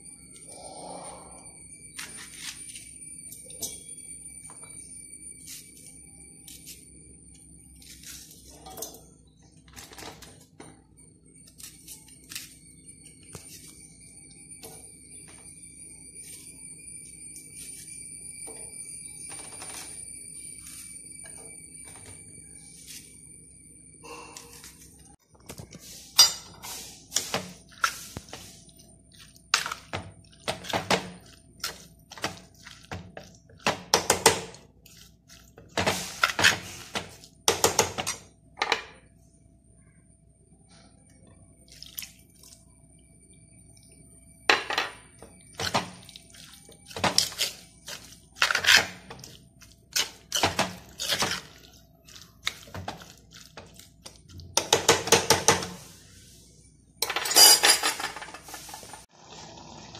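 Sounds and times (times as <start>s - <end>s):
spoon scraping clay pot: 25.7s - 38.3s, 45.1s - 56.1s.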